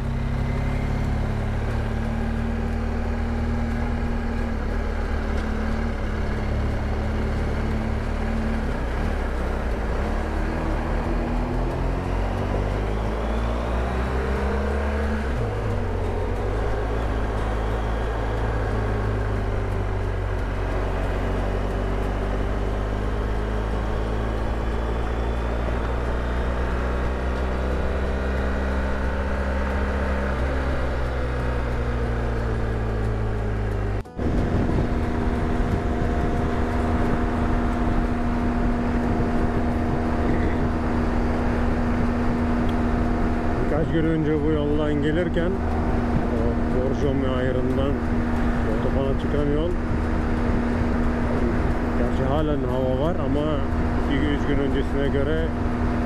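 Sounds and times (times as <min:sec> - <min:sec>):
motorcycle engine running: 0:00.0 - 0:56.0
wind rush: 0:34.2 - 0:43.7.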